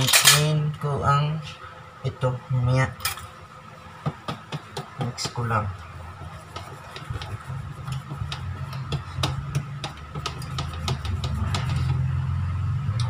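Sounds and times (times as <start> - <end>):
low steady hum: 0.0 - 13.0
whisk clicking in metal bowl: 6.2 - 12.0.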